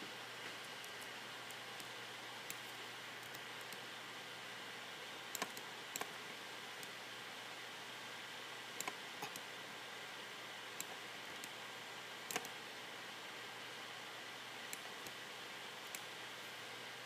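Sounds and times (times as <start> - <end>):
steady room hiss: 0.0 - 17.0
faint computer clicks: 5.3 - 6.1, 8.8 - 9.5, 12.3 - 12.6.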